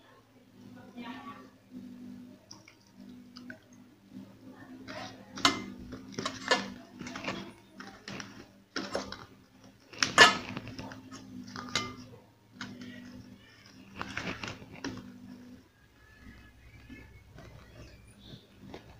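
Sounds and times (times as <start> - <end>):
clinks and scrapes in metal bowl: 4.9 - 9.3, 9.9 - 15.2.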